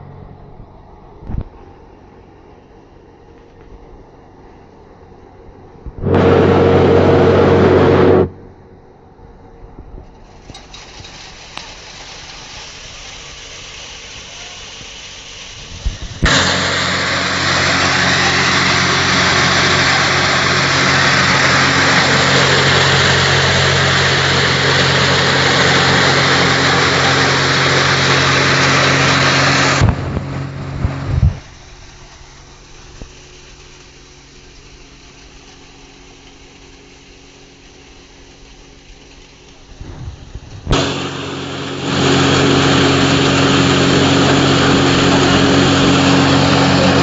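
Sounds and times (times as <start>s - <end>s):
machine motor hum: 5.9s - 8.7s, 16.1s - 32.4s, 34.6s - 47.0s
loud rushing grind: 6.0s - 8.5s, 15.5s - 31.5s, 39.6s - 47.0s.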